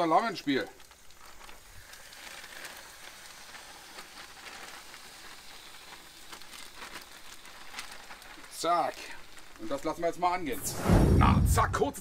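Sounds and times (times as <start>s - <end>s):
oil sizzling on a grill: 0.0s - 10.6s.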